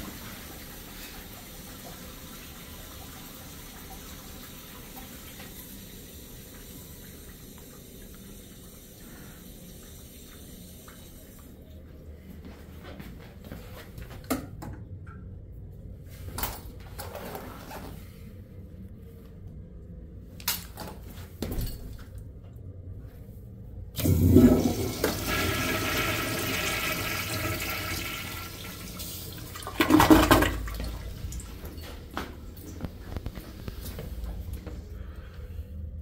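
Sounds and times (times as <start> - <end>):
toilet flushing water rush: 0.0 - 11.5, 24.0 - 31.6.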